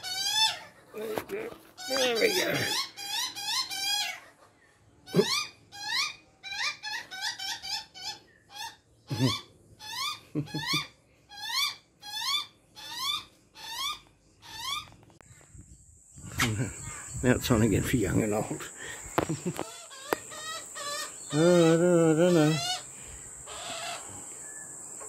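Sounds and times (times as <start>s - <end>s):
young magpie begging squawks: 1.8s - 4.3s, 19.6s - 22.9s.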